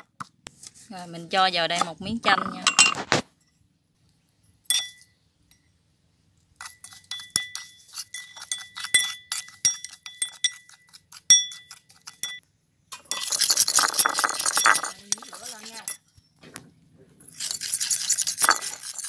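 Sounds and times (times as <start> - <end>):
metal spoon scraping ceramic bowl: 1.8 - 3.2, 6.6 - 16.2, 17.2 - 19.0.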